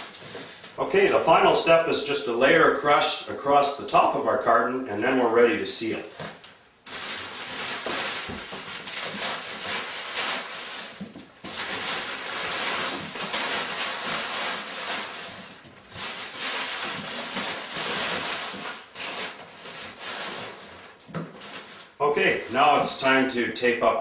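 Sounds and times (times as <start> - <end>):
packing paper rustling and crackling: 6.0 - 23.1.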